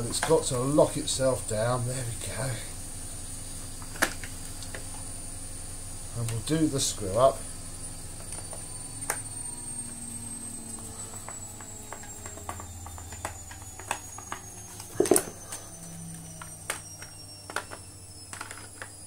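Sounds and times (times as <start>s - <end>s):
plastic clattering: 16.4s - 18.9s.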